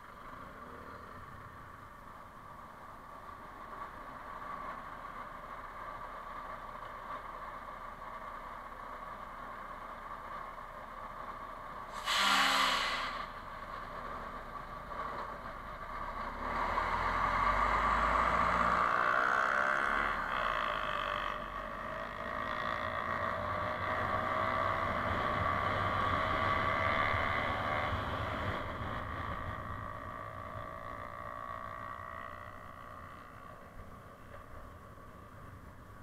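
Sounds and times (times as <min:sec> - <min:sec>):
road noise: 0:00.0 - 0:36.0
motorcycle engine: 0:18.5 - 0:35.8.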